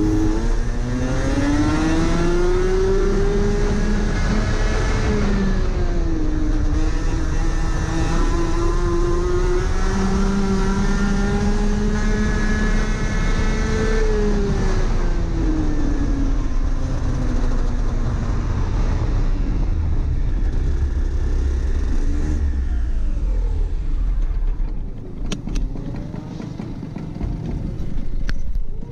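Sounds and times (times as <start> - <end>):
two-stroke kart engine: 0.0 - 28.9
low rumble: 14.2 - 28.9.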